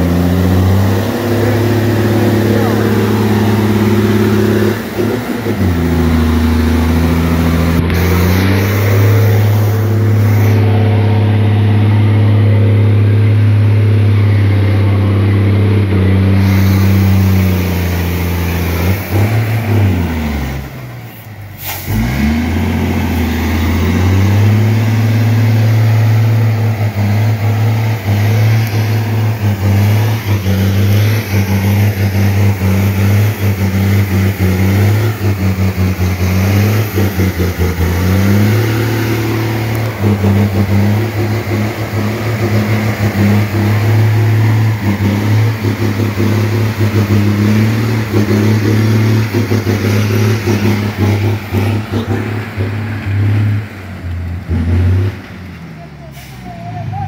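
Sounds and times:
diesel truck engine under load: 0.0 - 57.0.

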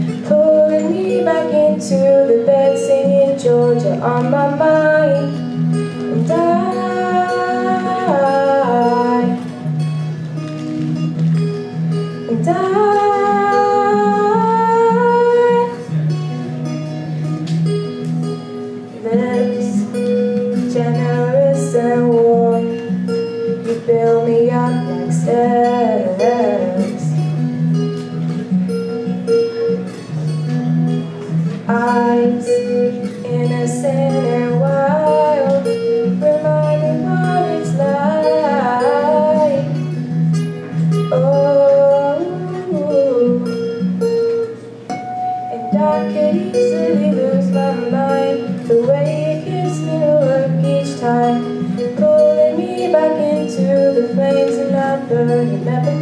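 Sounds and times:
woman singing pop song: 0.0 - 9.8, 12.3 - 16.0, 19.0 - 27.4, 31.6 - 43.8, 45.5 - 56.0
acoustic guitar chords: 0.0 - 56.0.

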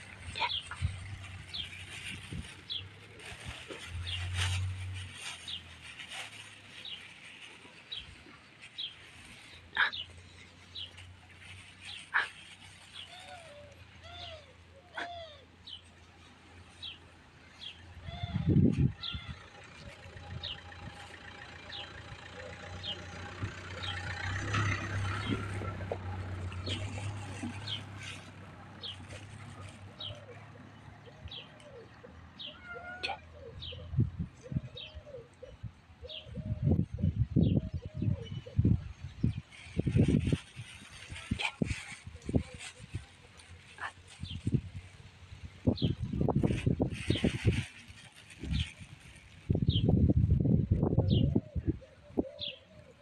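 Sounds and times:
vehicle engine idling: 15.6 - 32.6.

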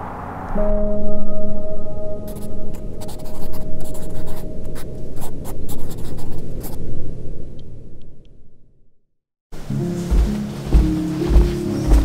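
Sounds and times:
gong-like ringing tone: 0.0 - 3.0
scratchy crackling noise: 2.3 - 6.8.

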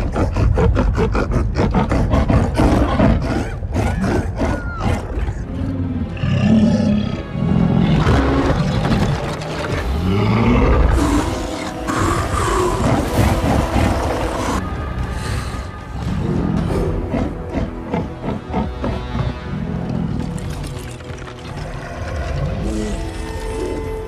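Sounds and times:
monster laughing and snarling: 0.0 - 5.4, 8.0 - 14.6, 16.6 - 20.3.

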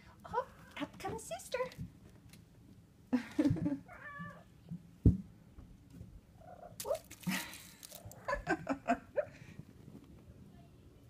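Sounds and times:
thump: 5.0 - 5.3
rustling: 5.8 - 8.6.

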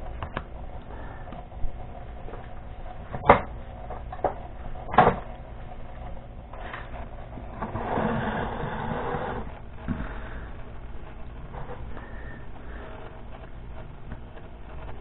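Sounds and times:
stand scraping across wooden table: 6.6 - 10.4.

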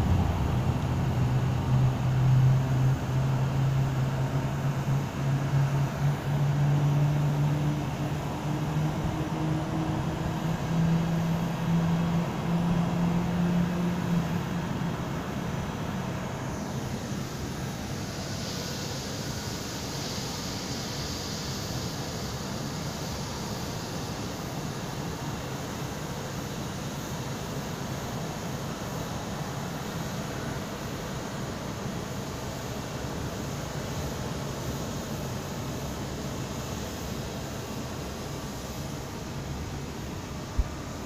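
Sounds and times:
jet engines humming: 0.0 - 19.0
falling jet engine whine: 0.0 - 41.0.

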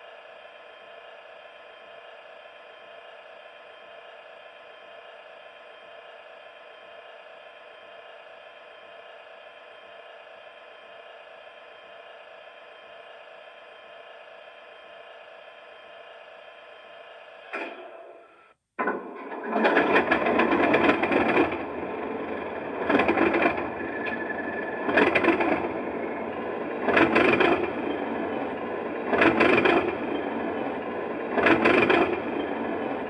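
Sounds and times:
faint steady mechanical hum: 0.0 - 18.6.

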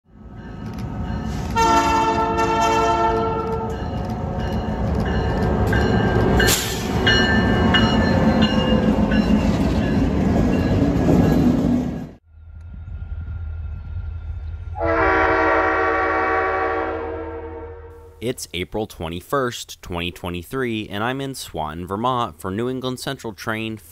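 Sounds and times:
passing trains rumbling: 0.1 - 18.3
locomotive chime horn: 0.6 - 9.4, 14.8 - 18.2
locomotive horns: 1.3 - 4.4, 14.8 - 18.2.

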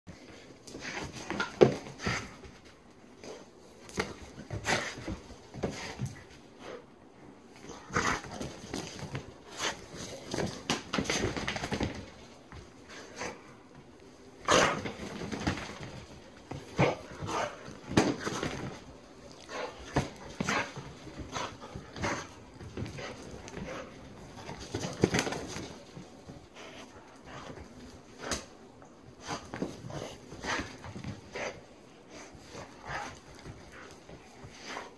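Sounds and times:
knocks and scuffles of movement: 7.4 - 34.9.

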